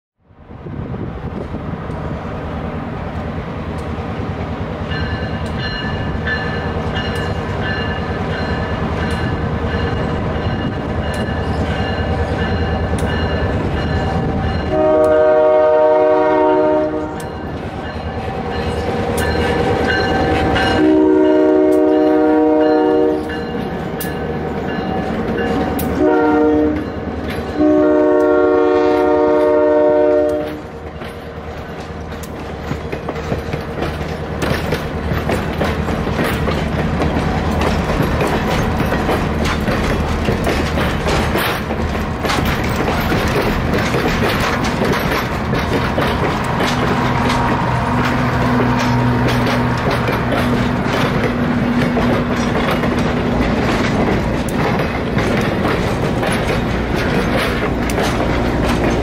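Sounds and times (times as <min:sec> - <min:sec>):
diesel locomotive engine rumble: 0:00.2 - 0:59.0
train air horn: 0:14.6 - 0:17.3, 0:20.1 - 0:23.3, 0:25.8 - 0:30.7
train cars clattering over rail joints: 0:17.3 - 0:59.0.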